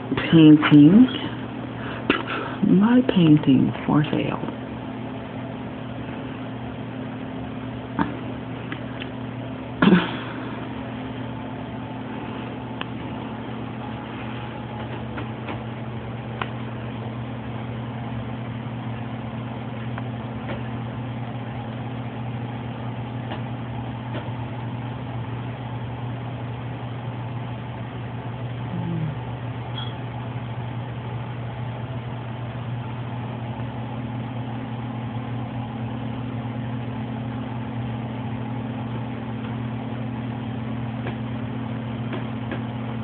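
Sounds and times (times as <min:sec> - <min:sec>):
low machine hum: 0:00.0 - 0:43.0.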